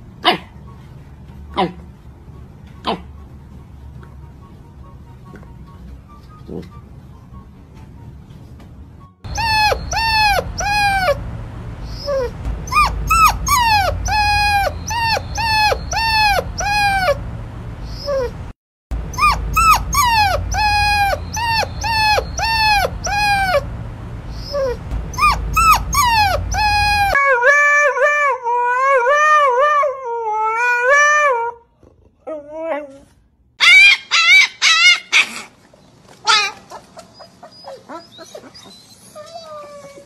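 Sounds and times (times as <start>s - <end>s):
dog howling: 9.3s - 11.2s, 11.9s - 17.2s, 19.1s - 23.7s, 24.4s - 31.6s
puppy yelping whimpers: 9.3s - 11.2s, 11.9s - 17.2s, 17.9s - 18.5s, 19.1s - 23.7s, 24.4s - 31.6s, 32.2s - 35.5s, 36.2s - 40.0s.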